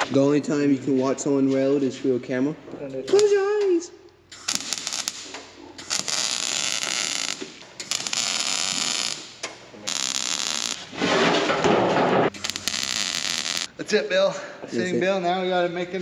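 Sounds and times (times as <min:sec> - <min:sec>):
welder arc crackling and sizzling: 0:04.3 - 0:11.0, 0:12.3 - 0:13.7.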